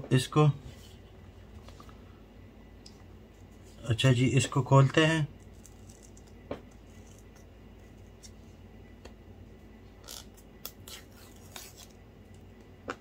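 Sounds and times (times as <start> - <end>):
paper tearing: 10.1 - 11.9.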